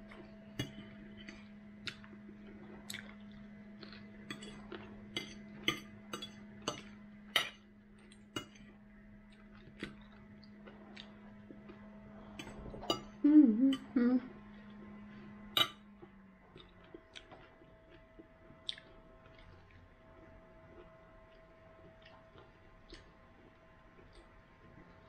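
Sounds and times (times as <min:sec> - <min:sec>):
low hum: 0:00.0 - 0:25.0
chewing: 0:00.1 - 0:05.7, 0:08.0 - 0:12.7, 0:16.0 - 0:25.0.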